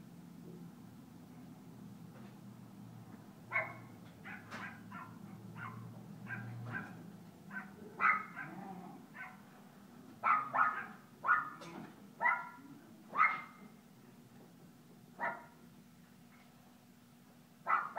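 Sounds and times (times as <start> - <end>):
small dogs barking and yipping: 3.5 - 9.5, 10.2 - 13.7, 15.2 - 15.6, 17.6 - 17.9.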